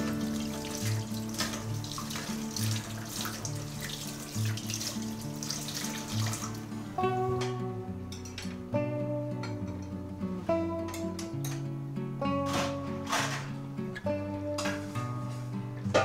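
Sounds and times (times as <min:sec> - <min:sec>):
kitchen faucet running: 0:00.0 - 0:06.6
water splashing off a plate: 0:00.0 - 0:06.6
soft guitar music: 0:00.0 - 0:16.0.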